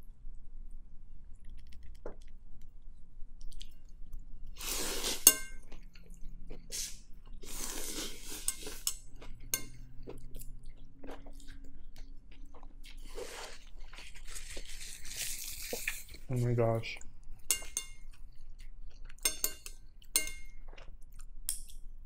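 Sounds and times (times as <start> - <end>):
chewing: 1.3 - 2.8, 3.4 - 16.3, 17.0 - 21.8
noodles slurping: 4.6 - 5.3, 6.6 - 8.9.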